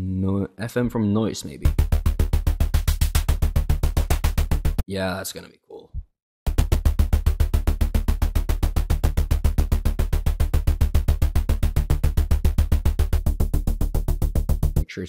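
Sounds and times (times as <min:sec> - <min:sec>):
synth pulse bass notes: 0:01.6 - 0:04.8, 0:06.5 - 0:14.8.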